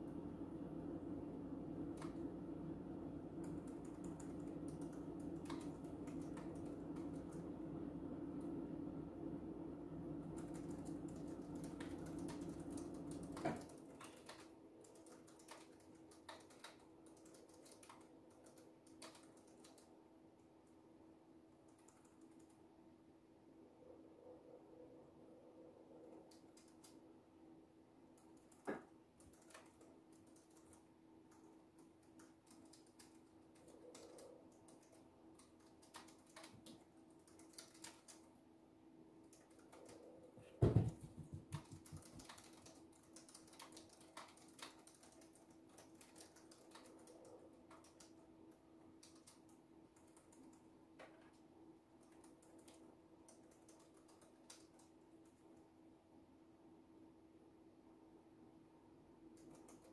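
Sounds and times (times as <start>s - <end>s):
faint steady hum: 0.0s - 59.9s
typing on a keyboard: 1.8s - 2.6s, 3.3s - 8.6s, 10.1s - 20.8s, 21.5s - 22.7s, 26.0s - 27.0s, 28.1s - 38.4s, 39.2s - 51.4s, 52.0s - 55.6s, 59.3s - 59.9s
loud thump: 40.6s - 41.3s.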